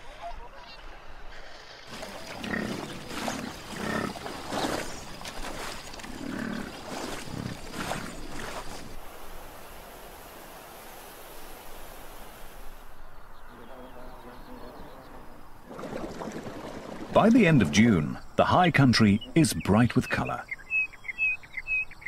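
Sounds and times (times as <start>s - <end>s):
bison grunting: 1.9s - 8.6s.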